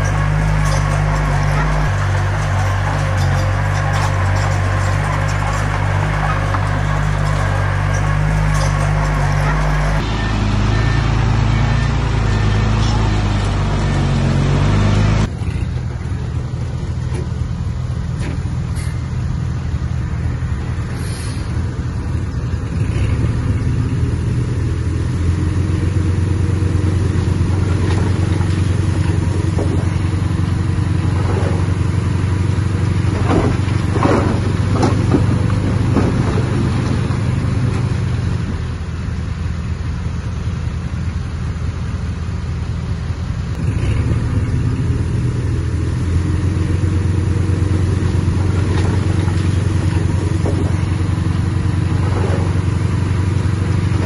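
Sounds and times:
short squeaks: 0.0s - 13.6s
bulldozer diesel engine running: 0.0s - 54.0s.

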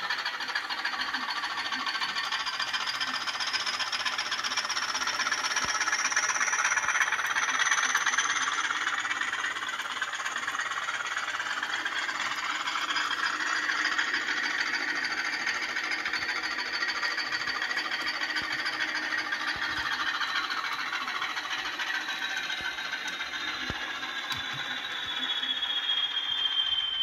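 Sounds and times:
diesel locomotive engine through loudspeaker: 0.0s - 27.0s
high whistle sliding down: 23.2s - 27.0s.

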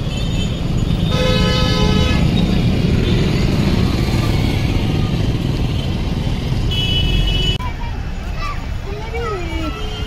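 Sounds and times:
road traffic rumble: 0.0s - 10.0s
vehicle horn: 1.1s - 2.4s, 6.7s - 7.6s.

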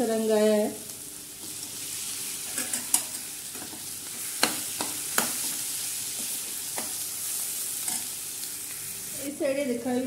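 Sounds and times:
food sizzling in a pan: 0.0s - 10.0s.

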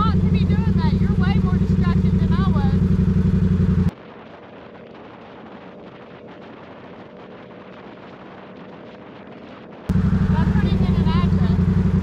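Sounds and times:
motorcycle engine running: 0.0s - 3.9s, 9.9s - 12.0s
muffled wind and road noise: 0.0s - 12.0s.

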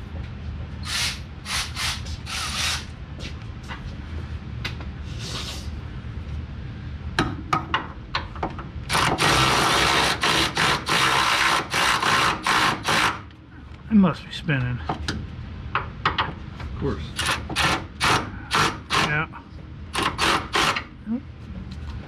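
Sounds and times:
power tool bursts on a nut: 8.9s - 13.2s, 17.2s - 19.1s, 19.9s - 20.8s.

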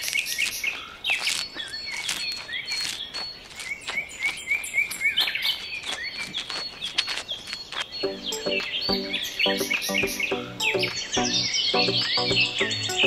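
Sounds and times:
small birds chirping: 0.0s - 13.0s.

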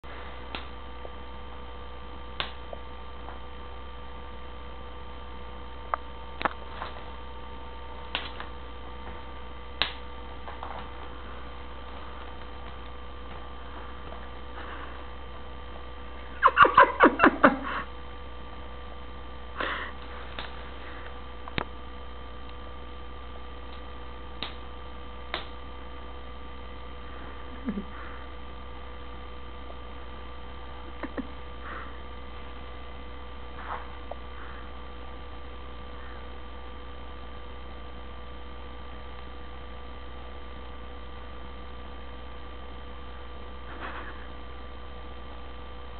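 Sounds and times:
electrical mains hum: 0.0s - 45.9s.

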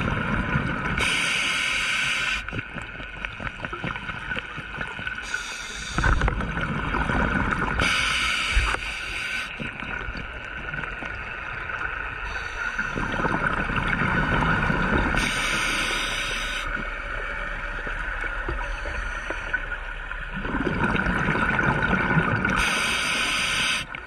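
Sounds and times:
regulator inhalation hisses: 1.0s - 2.5s, 5.2s - 6.2s, 7.8s - 9.6s, 12.3s - 13.2s, 15.2s - 16.8s, 22.6s - 24.0s.

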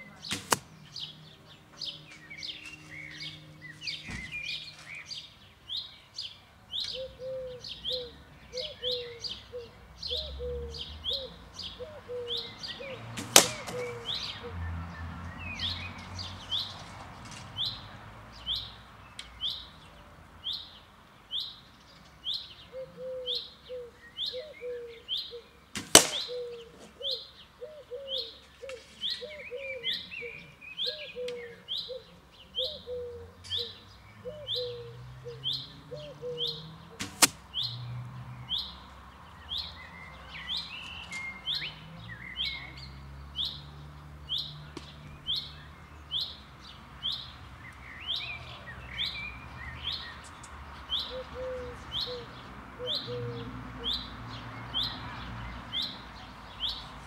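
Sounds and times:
birds chirping: 0.0s - 57.0s
arrows striking carton targets: 0.2s - 0.7s, 13.2s - 14.1s, 25.8s - 27.0s, 37.0s - 37.4s.

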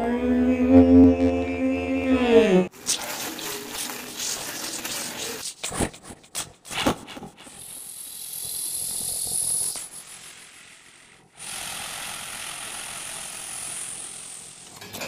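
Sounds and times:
droning tone sliding down: 0.0s - 2.7s.

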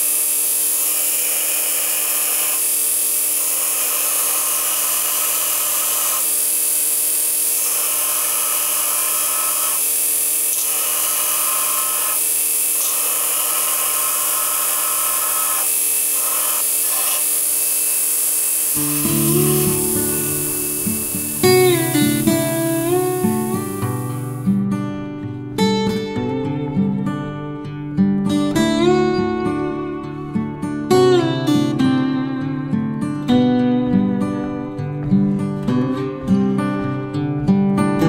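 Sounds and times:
belt grinder grinding steel: 0.0s - 24.5s
acoustic guitar music: 18.8s - 38.0s.

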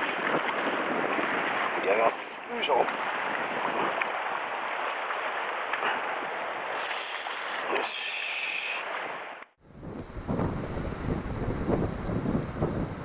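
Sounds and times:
wind buffeting microphone: 0.0s - 2.1s, 2.8s - 6.5s, 9.6s - 13.0s
sea water splashing on rocks: 0.0s - 8.0s.

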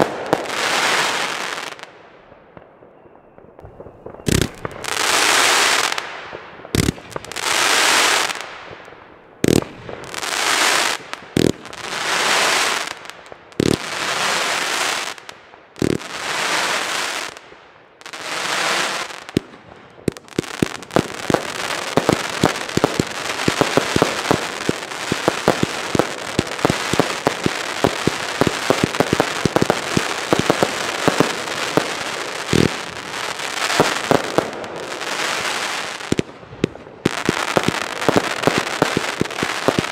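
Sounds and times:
crackling firework stars: 0.0s - 39.9s
firework shots thumping: 3.6s - 4.9s, 6.7s - 7.4s.

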